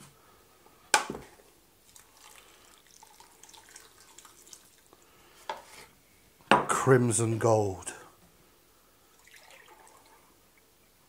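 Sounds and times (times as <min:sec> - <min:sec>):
liquid dripping into a pan: 0:01.8 - 0:05.1.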